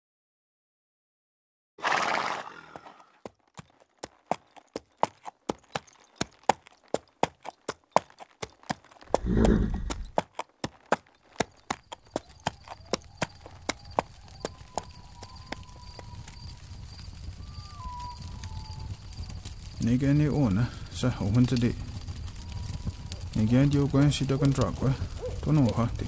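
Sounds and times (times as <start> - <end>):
horse snorting: 1.8 - 3.2, 9.1 - 10.2
horse hooves clip-clopping: 1.9 - 26.0.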